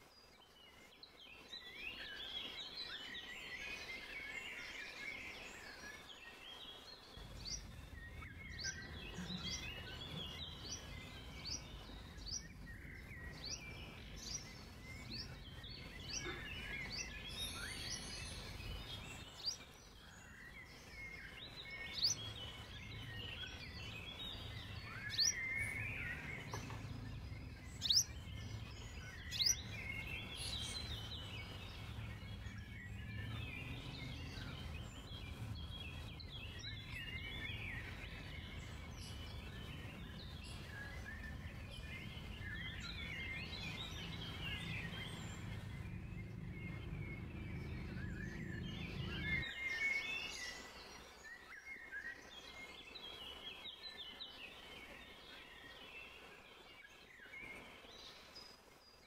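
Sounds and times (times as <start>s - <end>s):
songbirds chirping: 0.0s - 59.0s
low background rumble: 7.0s - 50.3s.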